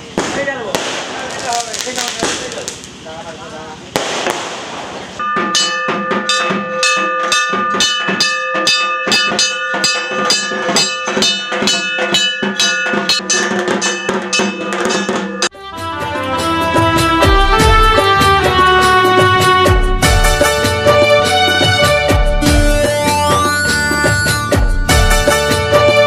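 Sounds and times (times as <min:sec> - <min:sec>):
fast devotional percussion: 0:04.1 - 0:15.5
ringing struck metal: 0:05.2 - 0:15.5
song with instruments and bass: 0:12.9 - 0:26.0.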